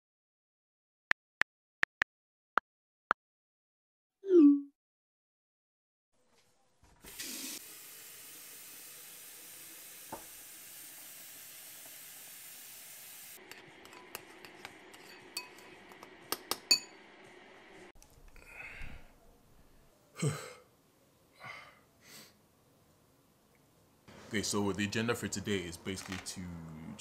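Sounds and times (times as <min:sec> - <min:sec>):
tap water running into kettle: 0:07.0 - 0:17.0
kitchenware clinking: 0:13.4 - 0:17.0.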